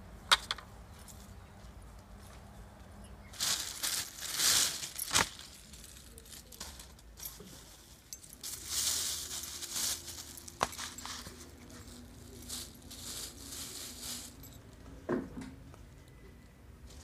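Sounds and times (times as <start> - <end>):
plastic bag crinkling: 3.3 - 14.6.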